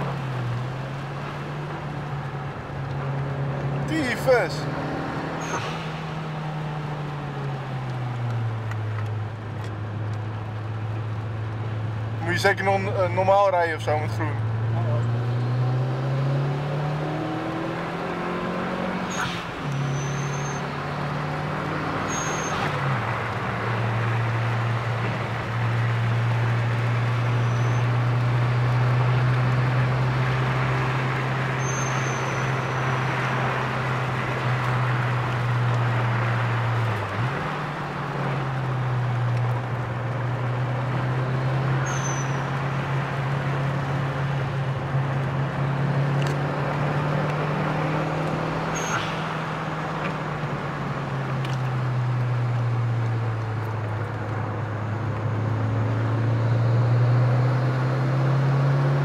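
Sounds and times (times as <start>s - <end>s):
car engine revving: 0.0s - 59.0s
road noise hiss: 18.8s - 55.5s.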